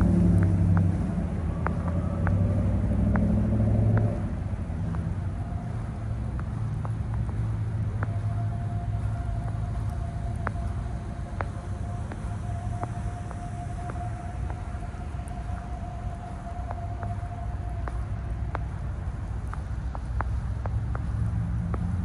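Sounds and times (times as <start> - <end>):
vehicle driving past: 0.0 - 5.6
faint steady tone: 0.0 - 22.0
low traffic rumble: 0.0 - 22.0.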